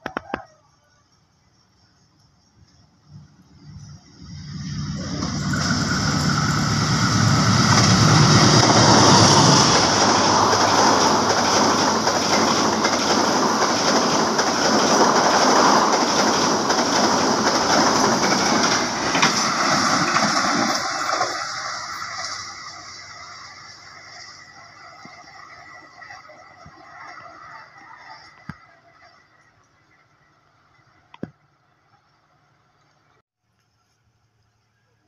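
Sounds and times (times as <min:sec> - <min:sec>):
locomotive engine droning: 0:01.6 - 0:33.1
train wheels rushing on rails: 0:02.5 - 0:29.4.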